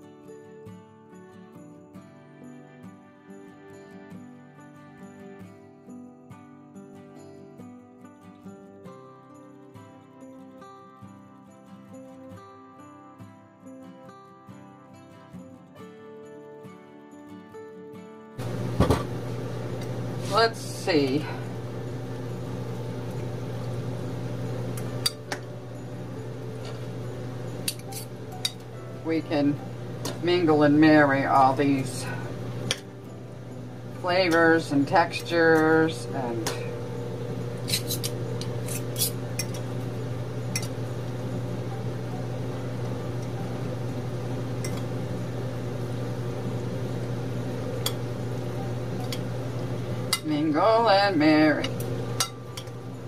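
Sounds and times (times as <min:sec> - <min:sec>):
steady low hum: 0:18.4 - 0:53.0
fork clinking against a bowl: 0:27.6 - 0:28.6, 0:37.6 - 0:39.7, 0:40.5 - 0:40.7.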